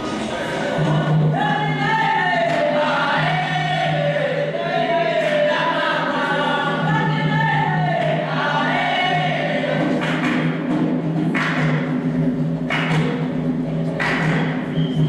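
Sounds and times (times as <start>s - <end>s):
choir singing over loudspeakers: 0.0s - 10.6s.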